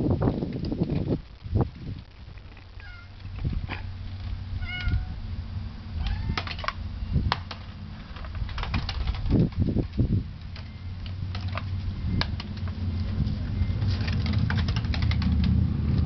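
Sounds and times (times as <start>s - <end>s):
steady low rumble: 0.0s - 16.0s
cat meowing: 2.8s - 3.2s, 4.6s - 5.2s, 6.0s - 6.6s.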